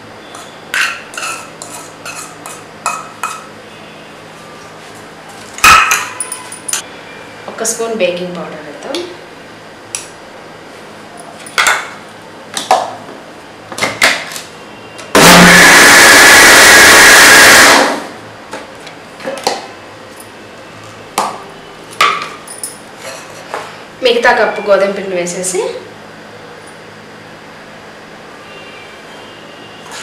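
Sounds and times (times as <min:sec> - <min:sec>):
electric mixer grinder running: 0:15.2 - 0:18.2.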